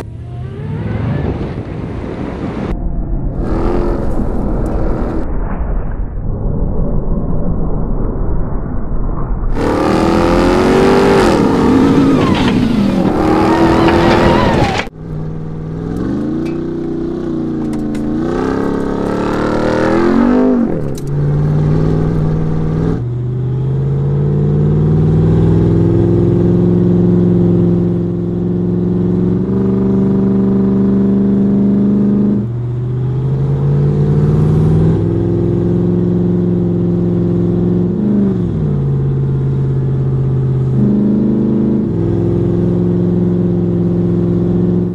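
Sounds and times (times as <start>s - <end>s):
truck engine revving: 9.5s - 44.9s.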